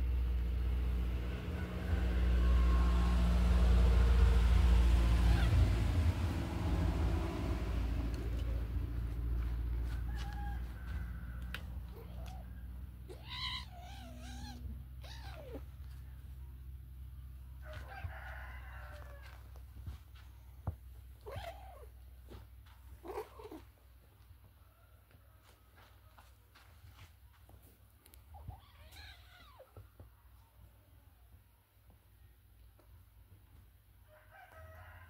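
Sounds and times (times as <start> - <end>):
kittens mewing and squealing: 5.1 - 6.0, 11.8 - 16.3, 21.2 - 22.1, 23.0 - 23.8, 28.3 - 30.0.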